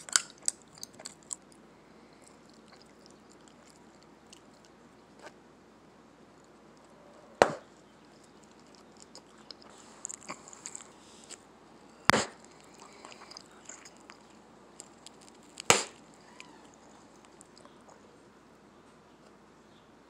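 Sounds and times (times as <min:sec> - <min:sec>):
gum smacking at lips: 0:00.0 - 0:01.6, 0:02.2 - 0:05.4, 0:07.7 - 0:18.2.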